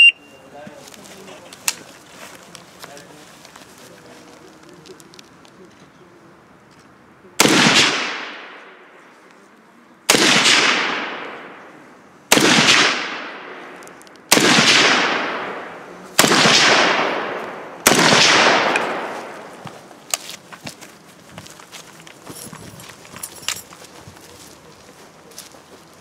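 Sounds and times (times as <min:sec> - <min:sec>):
rifle shots with echo: 0:07.4 - 0:09.0, 0:10.1 - 0:19.6.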